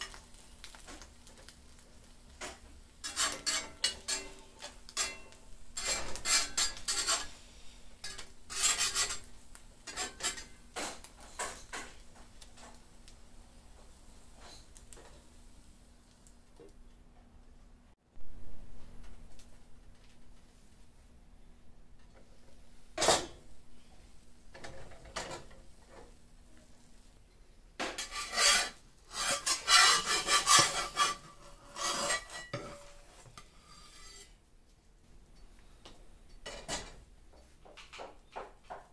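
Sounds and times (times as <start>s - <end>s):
spatula scraping frying pan: 0.0s - 12.9s, 27.8s - 34.4s.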